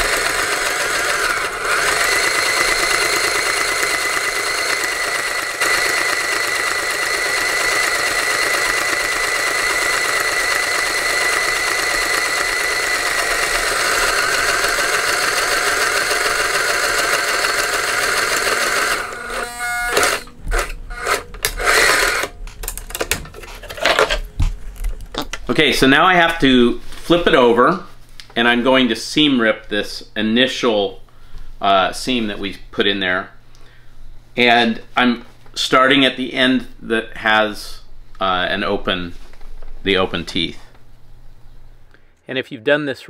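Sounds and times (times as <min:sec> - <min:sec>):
sewing machine running: 0:00.0 - 0:23.1.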